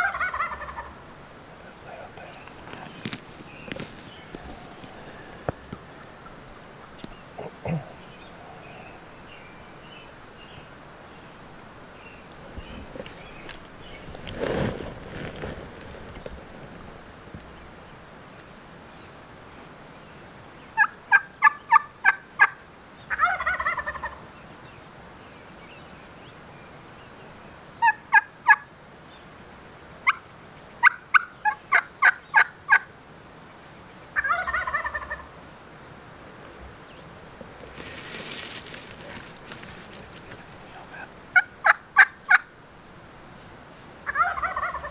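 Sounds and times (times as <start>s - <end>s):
turkey hen yelps: 0.0s - 1.0s, 23.1s - 24.2s, 34.2s - 35.3s, 40.9s - 42.5s, 44.0s - 44.9s
turkey gobbling: 0.0s - 1.1s, 1.8s - 9.3s, 20.8s - 24.2s, 27.8s - 28.6s, 30.8s - 32.9s, 34.2s - 35.4s, 37.7s - 42.5s, 44.0s - 44.9s.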